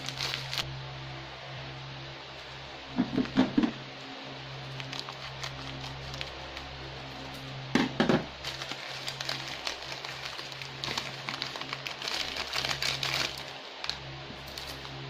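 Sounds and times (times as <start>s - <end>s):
crackers being crushed: 0.0s - 0.6s, 4.7s - 6.7s, 8.4s - 14.9s
plastic packet crinkling: 0.0s - 0.6s, 4.7s - 6.7s, 8.4s - 14.9s.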